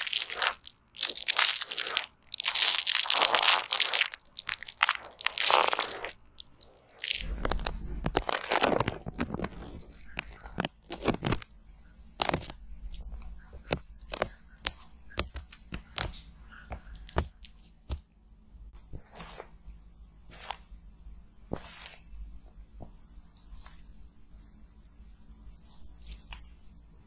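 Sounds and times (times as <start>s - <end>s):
low steady hum: 0.0s - 27.0s.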